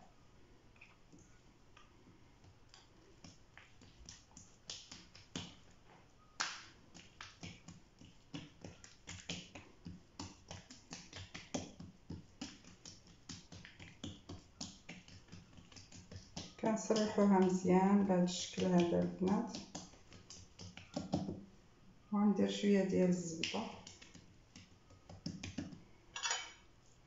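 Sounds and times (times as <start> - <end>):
hands patting sticky dough: 1.8 - 5.8, 6.4 - 21.4, 22.4 - 25.9.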